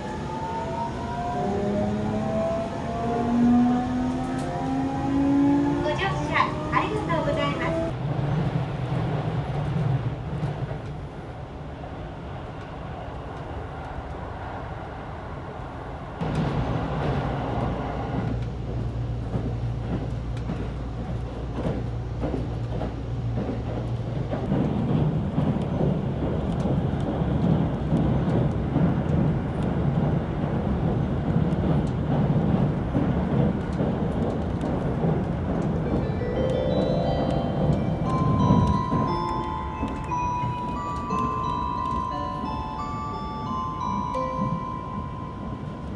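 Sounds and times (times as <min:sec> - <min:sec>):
train wheels rumbling on rail: 0:00.0 - 0:45.9
light musical notes: 0:35.9 - 0:45.9.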